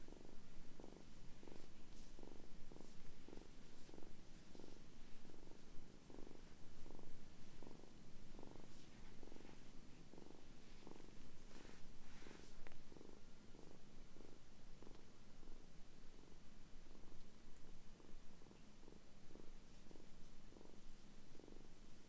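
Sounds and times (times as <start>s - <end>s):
kitten purring: 0.0s - 22.0s
hands rustling on fur: 0.8s - 13.1s.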